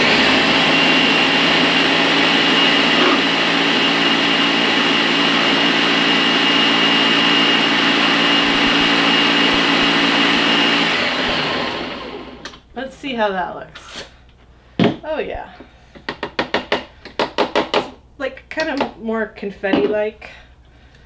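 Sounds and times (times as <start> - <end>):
blender whining: 0.0 - 12.6.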